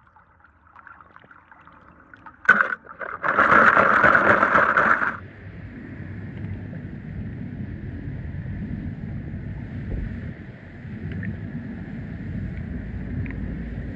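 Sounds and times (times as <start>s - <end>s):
wind buffeting microphone: 5.2s - 13.9s.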